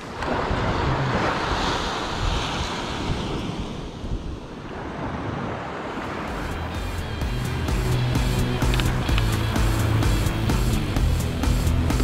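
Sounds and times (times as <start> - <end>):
surf breaking on beach: 0.0 - 6.7.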